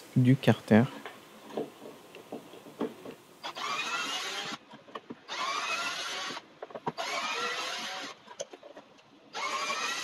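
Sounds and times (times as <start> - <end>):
cordless drill motor whine: 3.4 - 4.6, 5.3 - 8.2, 9.3 - 10.0
small clicks and knocks: 4.4 - 5.3, 6.3 - 7.0, 8.2 - 9.2.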